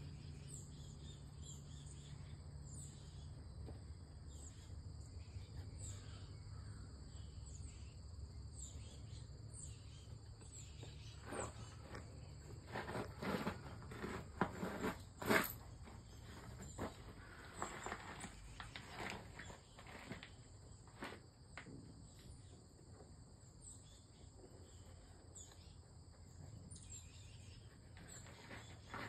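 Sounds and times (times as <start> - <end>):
soft rustles and scrapes: 10.4 - 21.8, 24.4 - 29.0.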